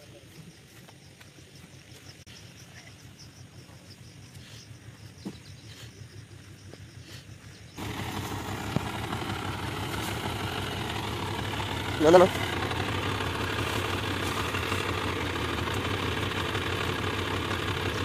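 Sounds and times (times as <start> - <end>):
tractor diesel engine running: 4.2 - 18.0.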